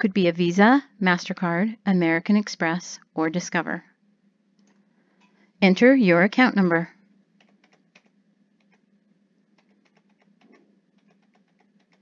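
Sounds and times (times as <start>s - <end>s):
faint steady hum: 0.0s - 12.0s
faint keyboard typing: 7.4s - 12.0s.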